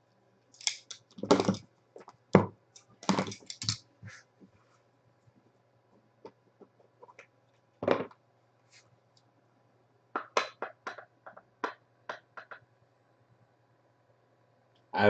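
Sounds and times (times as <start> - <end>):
cards clicking and snapping: 0.6 - 1.6.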